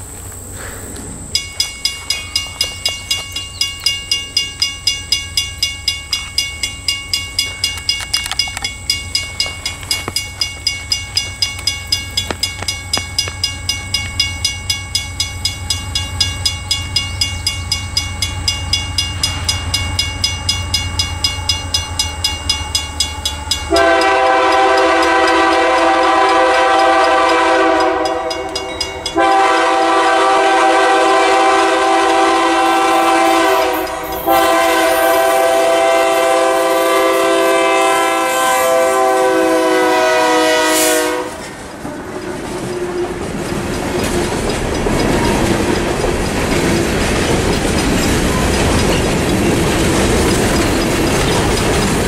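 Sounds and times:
mechanical crossing bell ringing: 0:01.4 - 0:29.5, 0:43.4 - 0:52.0
train air horn blasts: 0:23.7 - 0:28.6, 0:29.2 - 0:43.2.

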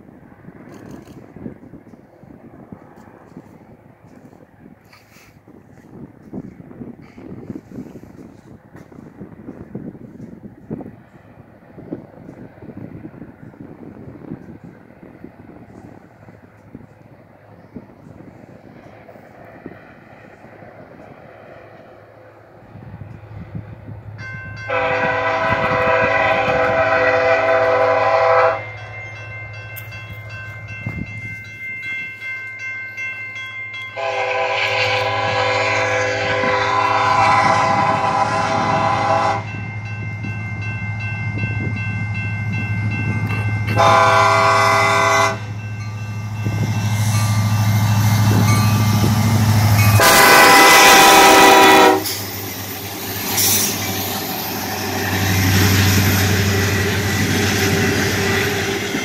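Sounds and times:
locomotive horn blasts: 0:24.6 - 0:28.8, 0:34.0 - 0:39.6, 0:43.6 - 0:45.6, 0:48.3 - 0:52.2.

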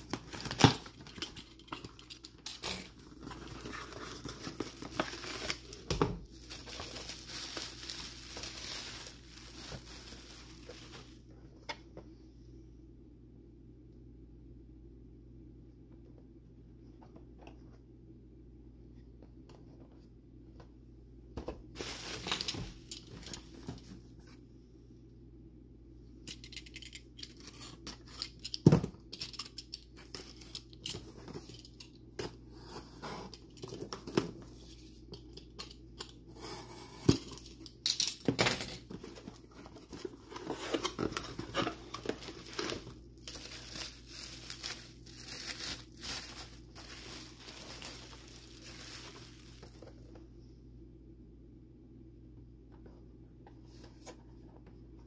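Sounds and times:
bubble wrap crinkling: 0:00.0 - 0:11.3, 0:21.8 - 0:23.8, 0:38.9 - 0:50.2.

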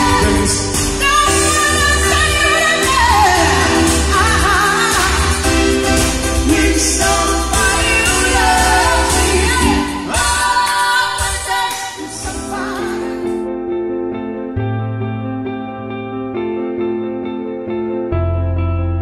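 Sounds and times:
heavy bass: 0:00.0 - 0:10.3
women singing: 0:00.0 - 0:13.4
keyboard: 0:00.0 - 0:19.0.

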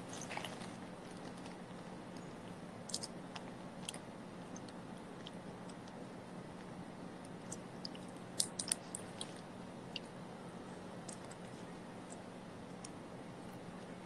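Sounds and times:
chewing: 0:00.0 - 0:01.6.

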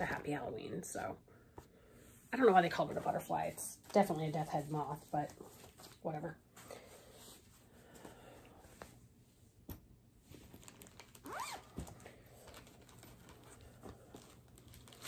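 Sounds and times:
plastic bags and fabric rustling: 0:02.3 - 0:08.2, 0:10.2 - 0:15.0.

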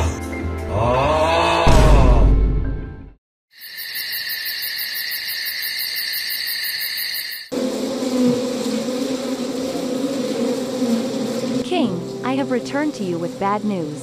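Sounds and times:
crickets chirping: 0:03.5 - 0:07.6.

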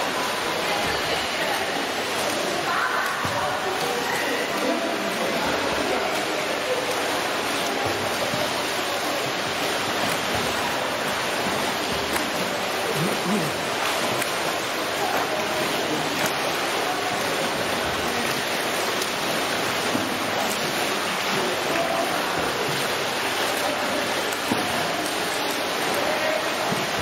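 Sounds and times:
swimmers splashing in pool: 0:00.0 - 0:27.0.

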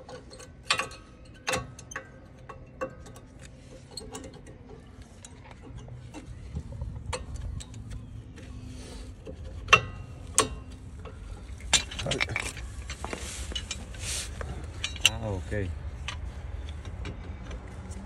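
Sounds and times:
metal tools clinking: 0:09.6 - 0:17.1.

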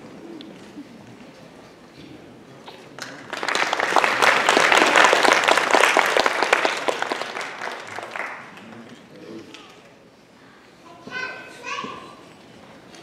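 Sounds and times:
audience applauding: 0:02.9 - 0:08.9.

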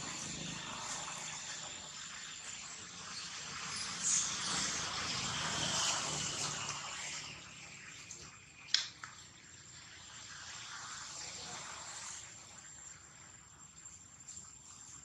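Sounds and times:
thin high continuous tone: 0:00.0 - 0:15.0.

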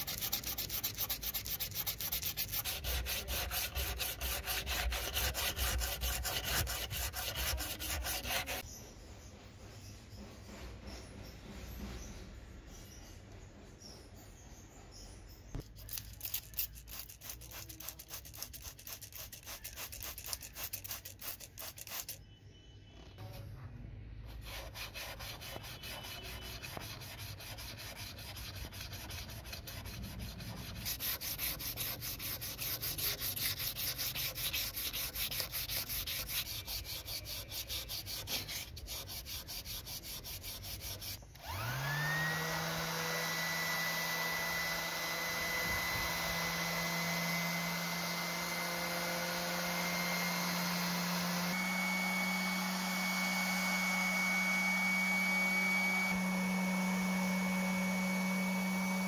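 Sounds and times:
sandpaper rubbing on metal: 0:00.0 - 0:08.7, 0:15.6 - 0:22.2, 0:24.3 - 0:41.2
orbital sander motor humming: 0:41.4 - 0:59.0.

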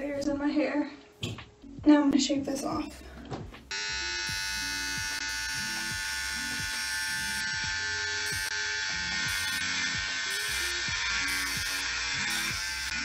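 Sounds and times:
hair clippers buzzing: 0:03.7 - 0:13.0.

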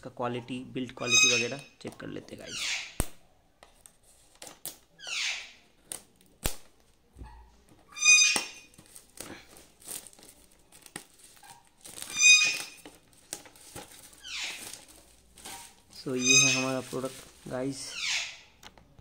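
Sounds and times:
loud high squeaks: 0:01.0 - 0:01.8, 0:07.9 - 0:08.8, 0:11.4 - 0:12.9, 0:14.1 - 0:14.9, 0:15.5 - 0:17.1
plastic wrap crinkling: 0:05.8 - 0:18.0.

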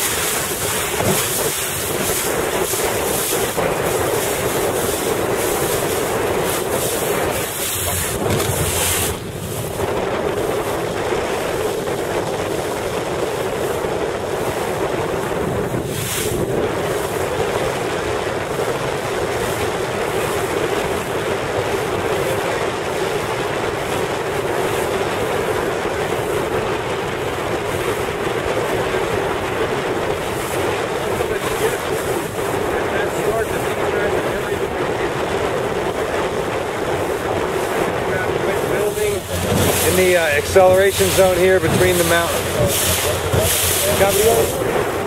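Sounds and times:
wind and water rushing: 0:00.0 - 0:45.0
wind buffeting microphone: 0:00.0 - 0:45.0
low hum: 0:05.7 - 0:10.4.

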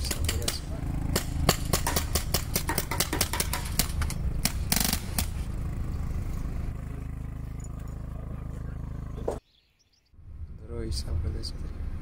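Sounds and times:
rapid irregular clicks: 0:00.0 - 0:05.3
steady low hum: 0:00.0 - 0:09.4.

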